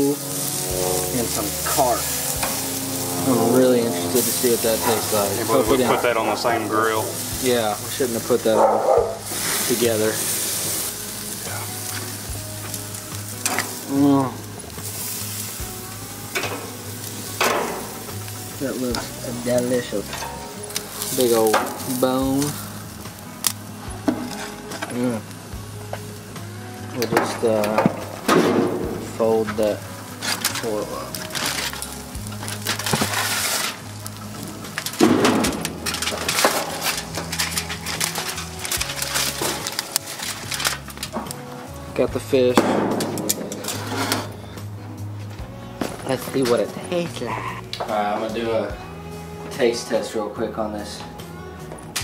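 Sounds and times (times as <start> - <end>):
aluminium foil crinkling: 0.0 - 28.3, 29.0 - 41.8
food sizzling on a grill: 0.0 - 52.0
short wavering pitched sound: 0.7 - 4.4.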